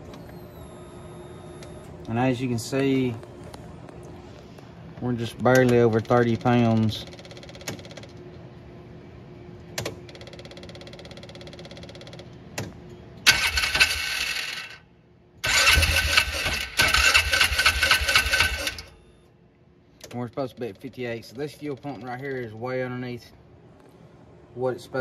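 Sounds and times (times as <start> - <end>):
engine cranking on starter: 13.3 - 14.8, 15.4 - 18.9.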